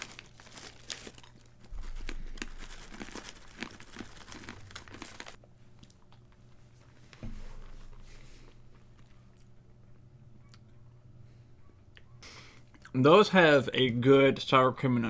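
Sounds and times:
crinkly snack bag crackling: 0.0 - 5.4.

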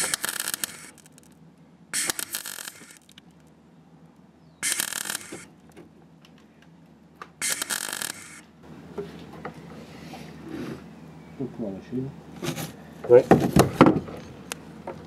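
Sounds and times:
welder tack welding: 0.0 - 1.3, 2.0 - 3.2, 4.6 - 5.5, 7.4 - 8.5.

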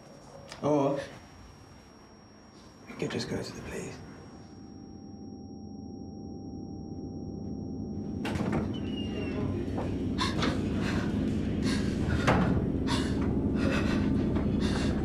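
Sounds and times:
low rumble: 4.5 - 15.0.

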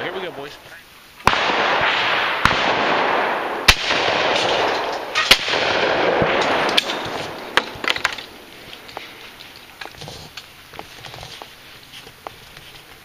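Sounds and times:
shotgun shots: 1.2 - 7.9.

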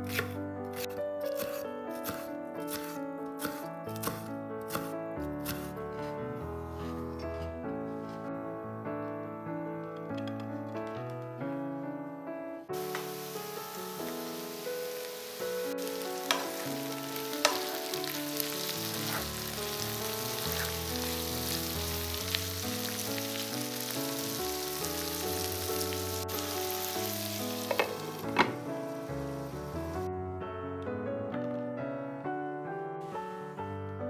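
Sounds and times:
background music: 0.0 - 34.0
food sizzling in a pan: 12.8 - 30.0
utensil clicking against pan: 16.2 - 16.6, 27.7 - 28.5.

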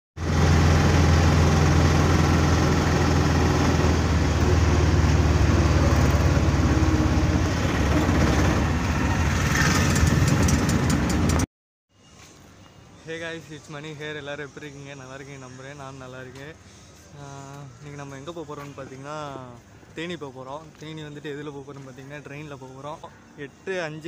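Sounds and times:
auto rickshaw engine droning: 0.2 - 11.5.

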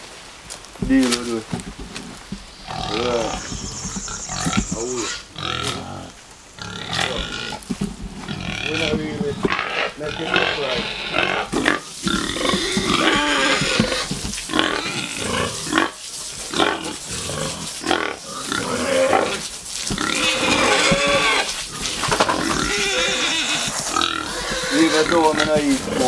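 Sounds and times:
pigs crying and grunting: 2.6 - 26.0.

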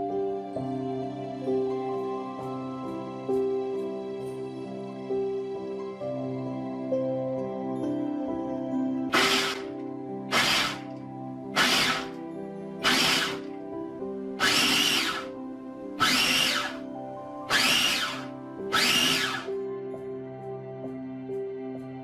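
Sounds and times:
background music: 0.0 - 22.0
food processor pulsing: 9.1 - 9.7, 10.3 - 10.9, 11.6 - 12.2, 12.8 - 13.5, 14.4 - 15.3, 16.0 - 16.8, 17.5 - 19.5.

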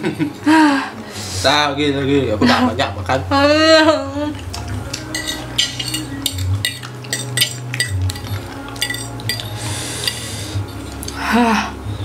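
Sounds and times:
cutlery scraping ceramic plate: 4.9 - 11.1.

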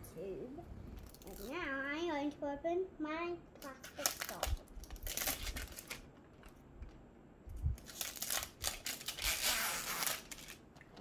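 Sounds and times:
plastic and foil packaging crinkling: 1.0 - 1.6, 3.6 - 6.6, 7.6 - 10.7.

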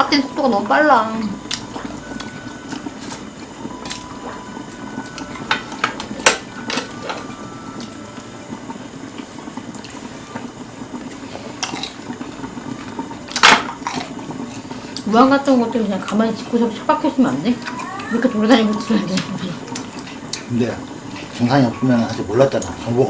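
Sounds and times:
stew bubbling in a pot: 0.0 - 23.0
dishes clacking: 5.1 - 7.9, 13.3 - 14.7.

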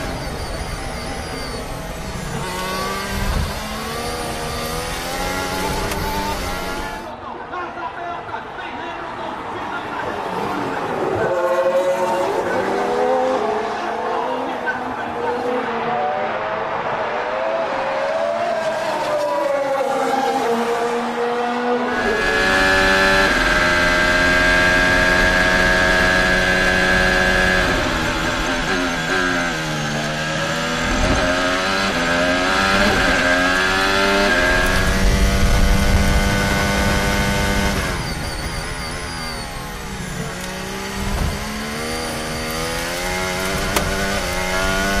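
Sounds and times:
engine gear change: 0.0 - 7.0, 27.6 - 45.0
racing car engine at high revs: 0.0 - 7.1, 10.0 - 45.0.

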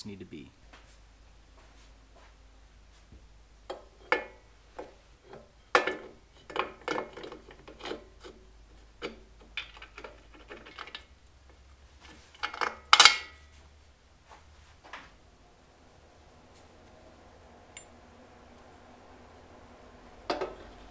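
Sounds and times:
metal parts clicking and knocking: 3.7 - 8.4, 9.0 - 11.1, 12.3 - 13.4.

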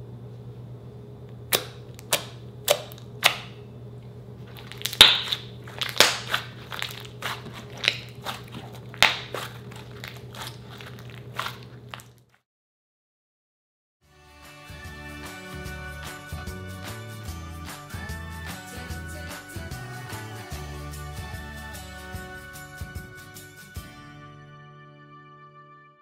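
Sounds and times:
low steady hum: 0.0 - 12.3
slime popping clicks: 1.5 - 3.5, 4.6 - 6.9.

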